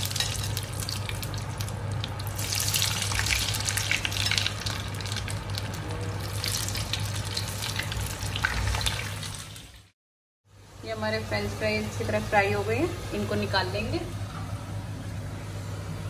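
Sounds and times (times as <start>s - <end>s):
fries sizzling in oil: 0.0s - 10.0s.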